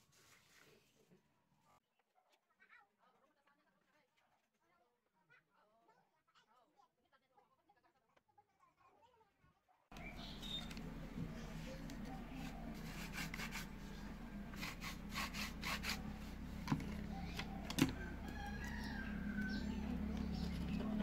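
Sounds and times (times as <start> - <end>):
wood scraping on wood: 10.3 - 21.0.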